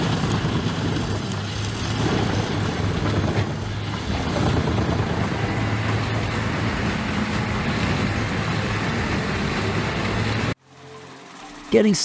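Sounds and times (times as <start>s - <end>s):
wood chipper chipping logs: 0.0s - 11.7s.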